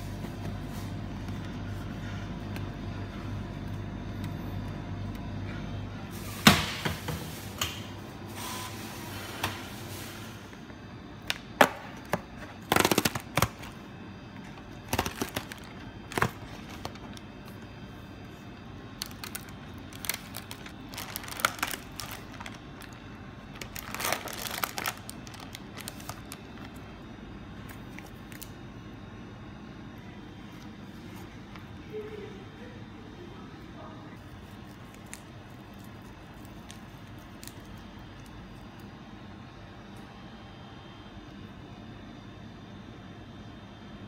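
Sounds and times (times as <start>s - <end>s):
plastic tray crackling and rustling: 14.8s - 17.2s, 19.0s - 23.0s, 23.6s - 26.7s.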